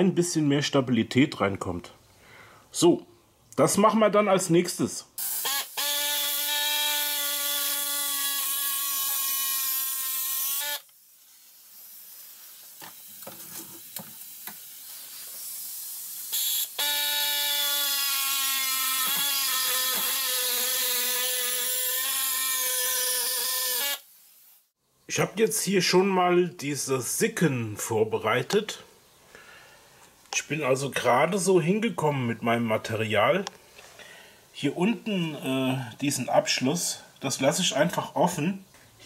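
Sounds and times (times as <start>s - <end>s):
power tool motor whining: 5.2s - 10.9s, 16.2s - 24.1s.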